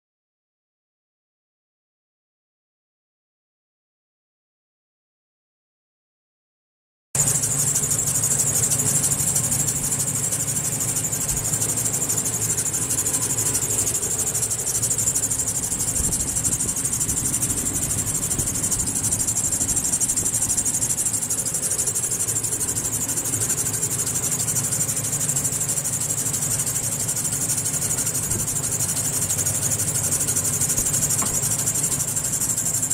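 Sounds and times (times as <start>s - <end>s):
high-pitched hiss: 7.2s - 32.9s
truck engine idling: 7.2s - 32.9s.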